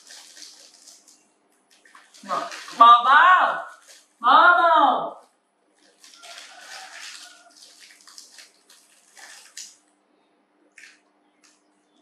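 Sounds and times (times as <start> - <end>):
plastic snack packet crinkling: 0.0 - 2.8, 3.7 - 4.2, 5.7 - 9.8.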